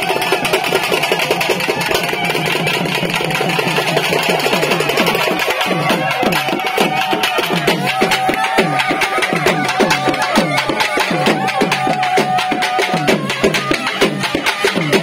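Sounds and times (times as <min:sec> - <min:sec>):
fast festival drums: 0:00.0 - 0:15.0
wind instrument long high note: 0:04.2 - 0:15.0.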